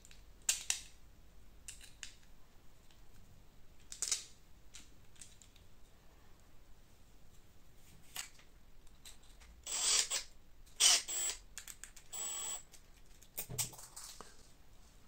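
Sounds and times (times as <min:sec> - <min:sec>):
plastic parts clicking: 0:00.0 - 0:01.0, 0:01.7 - 0:02.3, 0:03.8 - 0:05.6, 0:11.6 - 0:12.1
cordless screwdriver running: 0:09.7 - 0:10.2, 0:10.8 - 0:11.4, 0:12.1 - 0:12.6.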